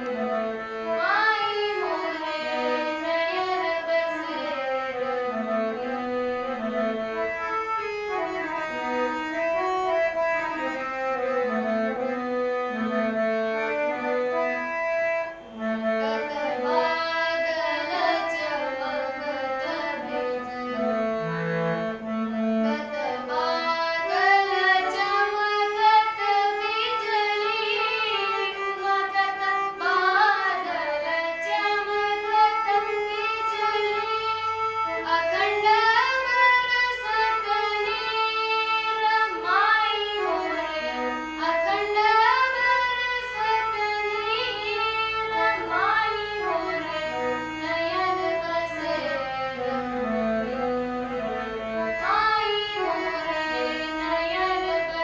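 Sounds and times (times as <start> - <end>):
girl singing: 0.8 - 5.2, 16.0 - 20.8, 22.6 - 50.7, 51.8 - 55.0.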